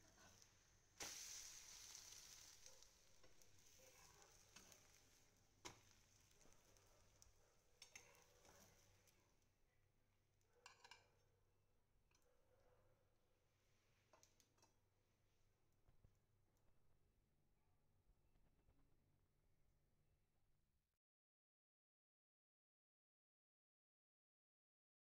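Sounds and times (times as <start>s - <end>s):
omelette sizzling in a frying pan: 0.0s - 9.2s
metal spatula clicking on pan: 4.0s - 5.0s, 7.8s - 8.6s.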